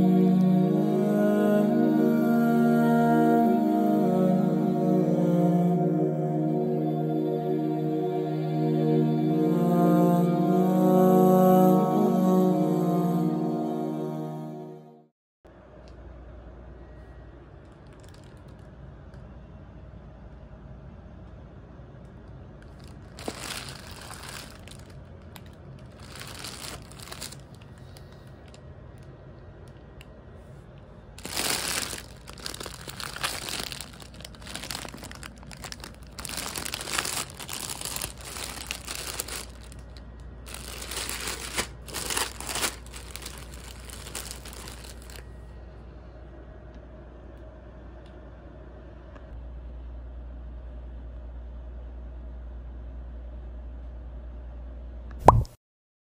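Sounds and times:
plastic packets crinkling: 17.8 - 18.6, 22.6 - 28.2, 31.2 - 45.3.

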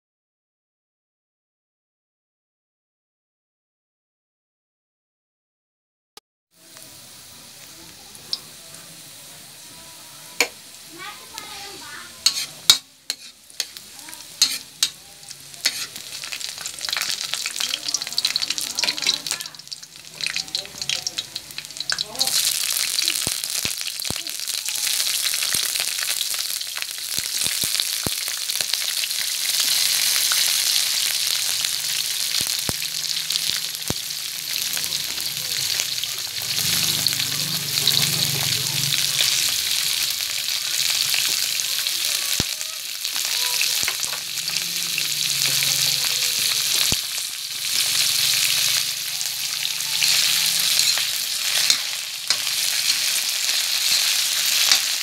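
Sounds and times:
garlic sizzling in butter: 6.6 - 55.0
spatula scraping metal wok: 11.7 - 19.4, 46.4 - 55.0.

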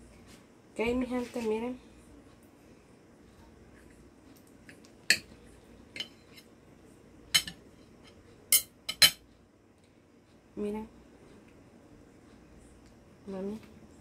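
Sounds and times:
cutlery clinking on plate: 7.4 - 7.6, 8.5 - 9.2.

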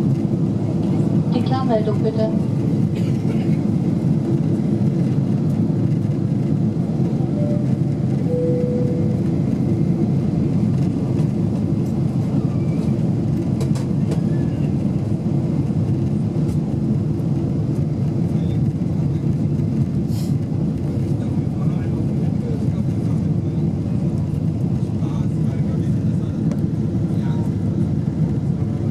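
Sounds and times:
airflow over fuselage: 0.0 - 28.9
jet engine drone in cabin: 0.0 - 28.9
short cabin tones: 7.2 - 9.5.

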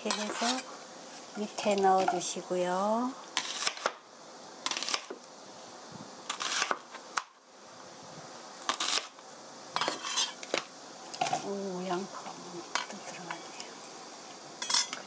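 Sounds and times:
knife crunching through onion: 3.4 - 4.0, 4.7 - 5.2, 6.3 - 7.3, 8.7 - 9.2.

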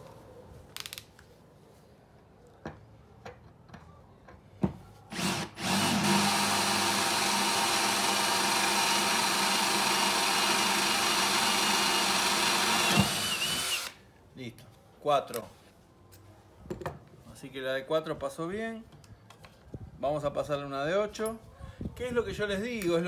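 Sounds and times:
drill boring through steel: 5.1 - 14.0.

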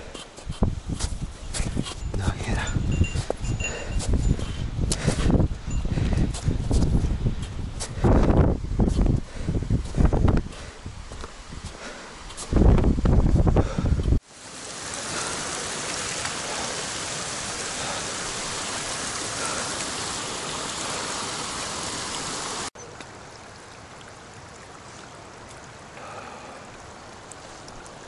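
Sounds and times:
stream water rushing: 14.2 - 28.0.

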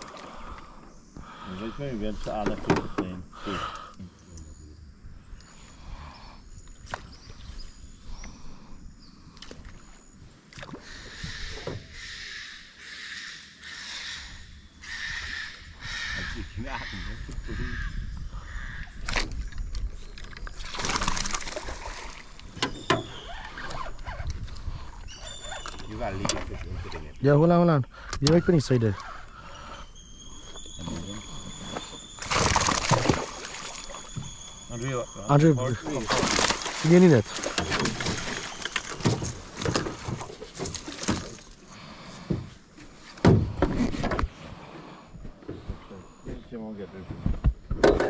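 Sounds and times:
water splashing beside boat: 0.0 - 0.7, 19.1 - 26.8, 30.4 - 44.6
fish splashing in a net: 20.6 - 22.3, 32.2 - 34.1, 35.9 - 41.5.

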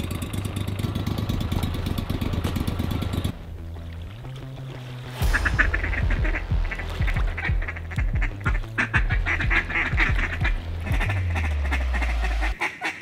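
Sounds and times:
music with deep bass and beat: 3.3 - 12.6
ducks quacking: 5.2 - 13.0.

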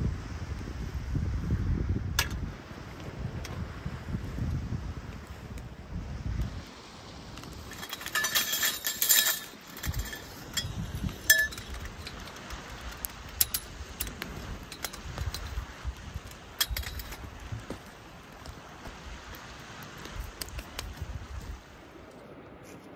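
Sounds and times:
metal tripod poles clinking: 7.5 - 12.6, 13.4 - 15.7, 16.5 - 17.5.

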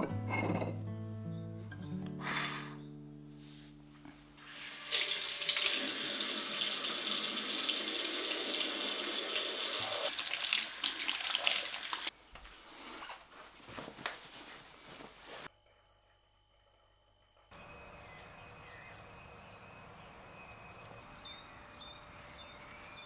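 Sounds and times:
hands rinsed under water: 4.8 - 12.1.

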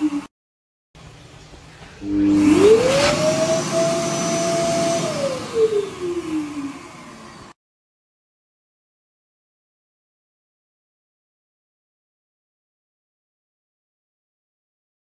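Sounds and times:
hand dryer motor whine: 2.0 - 7.6.

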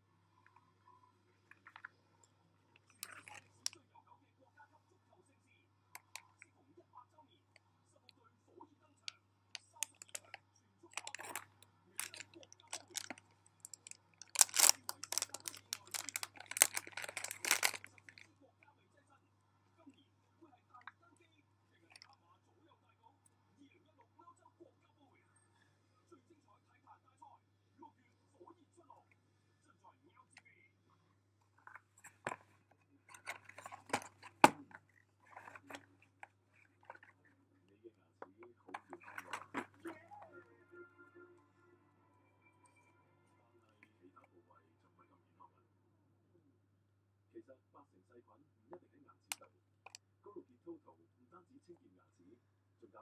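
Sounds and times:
plastic packet crinkling: 10.9 - 18.2.

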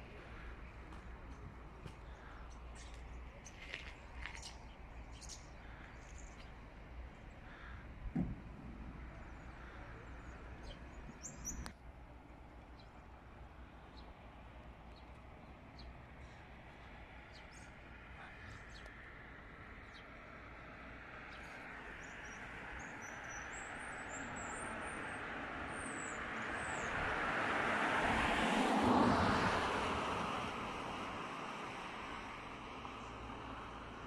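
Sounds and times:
vehicle passing on road: 0.0 - 34.0
small birds chirping: 0.1 - 8.2, 8.8 - 11.8, 12.6 - 19.1, 19.8 - 20.3, 21.2 - 27.0.

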